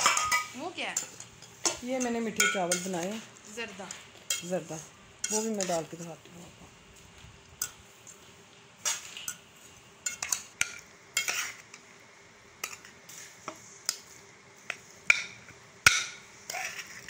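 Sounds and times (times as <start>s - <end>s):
metal spoon scraping metal pot: 16.5s - 17.0s.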